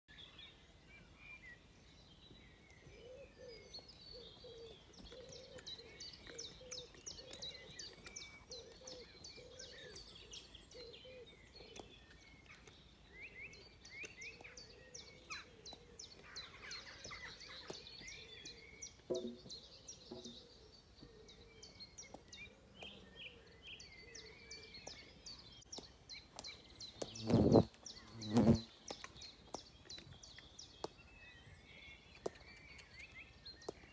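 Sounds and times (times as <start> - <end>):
birds singing and chirping: 0.1 - 33.9
wasp buzzing: 27.1 - 28.7.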